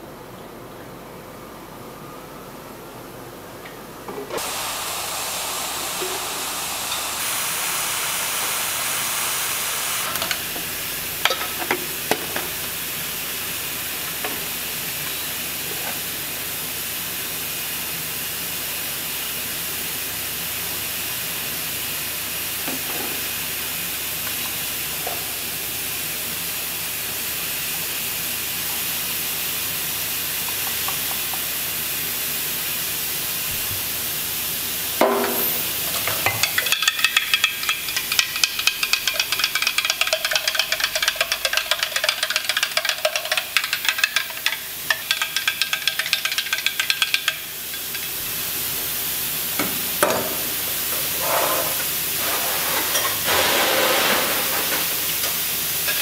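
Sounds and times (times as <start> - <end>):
steam-like hiss: 4.4 - 56.0.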